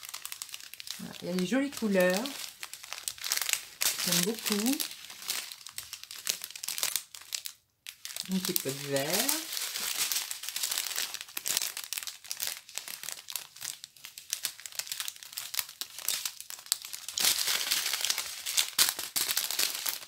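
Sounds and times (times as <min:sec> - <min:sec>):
plastic bags crinkling: 0:00.0 - 0:20.0.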